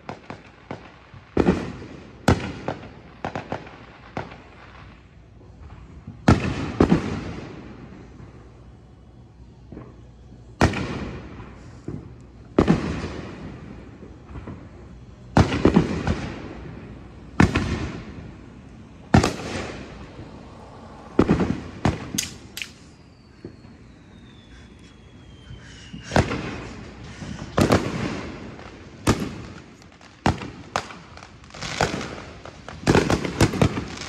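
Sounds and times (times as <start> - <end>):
fireworks booming: 0.0 - 8.6, 9.5 - 34.0
sharp firework bangs: 10.6 - 14.7, 15.3 - 18.5, 19.1 - 23.5, 25.5 - 34.0
thin descending whistle: 22.6 - 26.3.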